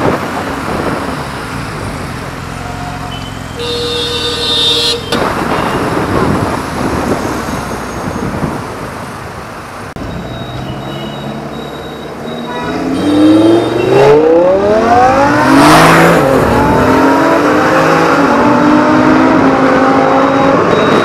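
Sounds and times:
busy road traffic: 0.0 - 21.0
vehicle horn: 2.6 - 5.8, 12.4 - 14.2.

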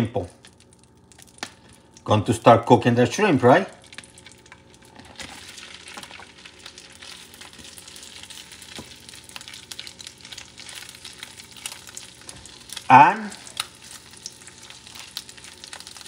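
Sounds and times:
shrimp sizzling in a pan: 3.9 - 16.0.

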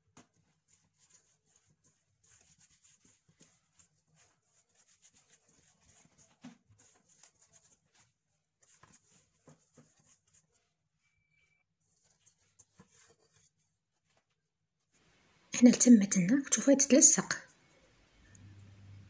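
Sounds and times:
dough squelching: 0.0 - 11.0.

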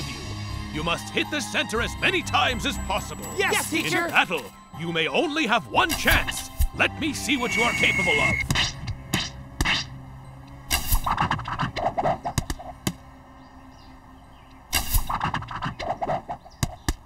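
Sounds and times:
arrows hitting wooden targets: 10.7 - 13.0, 14.7 - 17.0
arrows whooshing: 14.7 - 16.4.

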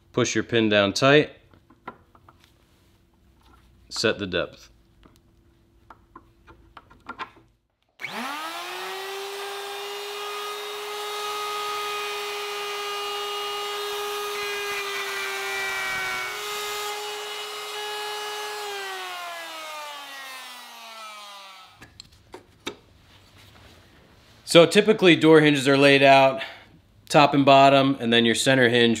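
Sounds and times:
router whining while cutting wood: 8.0 - 21.8.

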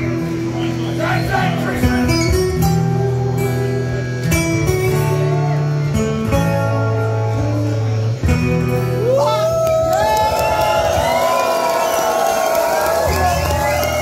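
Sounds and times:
amplified acoustic guitars: 0.0 - 14.0
audience whooping: 9.0 - 14.0.

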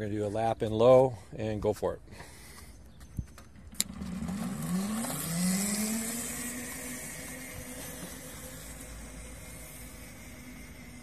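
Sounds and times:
electric go-kart motor whine: 3.6 - 11.0.

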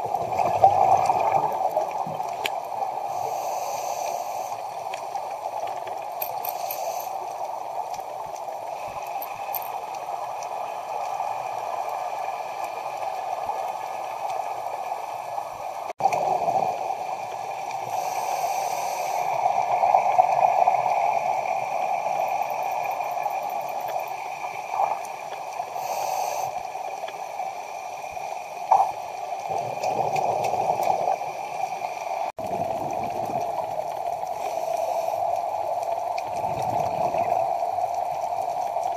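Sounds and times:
bubbling exhaled air: 0.0 - 2.4, 32.3 - 38.9
underwater rushing: 0.0 - 38.9.

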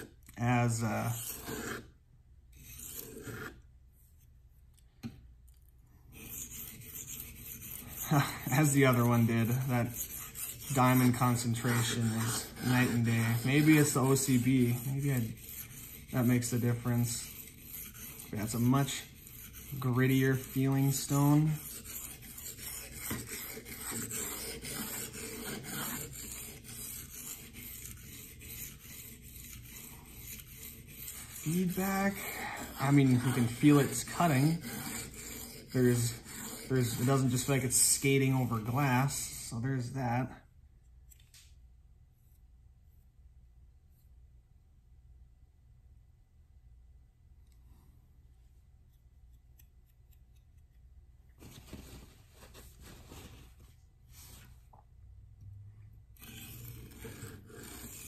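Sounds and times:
knife blade scraping on whetstone: 0.0 - 3.6, 6.1 - 39.1, 56.2 - 58.0.

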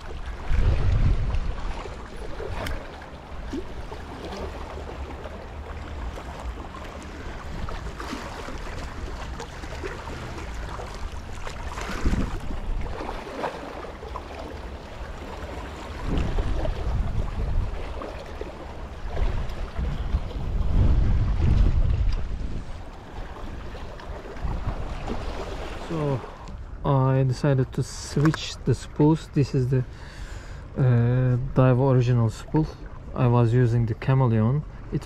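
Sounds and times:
wind rumbling on microphone: 0.0 - 13.9, 14.6 - 26.9
waves lapping against rocks: 0.0 - 26.6.

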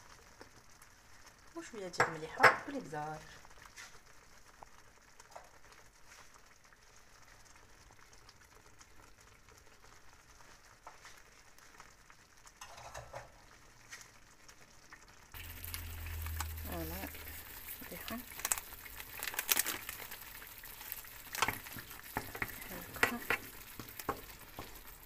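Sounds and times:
sauce sizzling and bubbling: 0.0 - 25.0
low hum: 15.4 - 17.8.

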